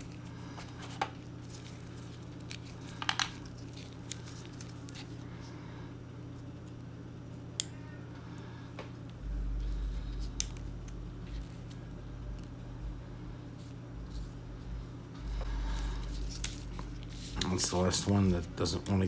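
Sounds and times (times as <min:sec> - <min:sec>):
steady low hum: 0:00.0 - 0:19.0
low rumble: 0:09.1 - 0:17.2.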